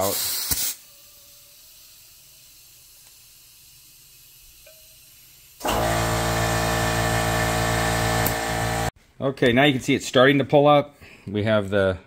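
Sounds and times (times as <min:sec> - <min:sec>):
air compressor humming: 0:05.5 - 0:08.9.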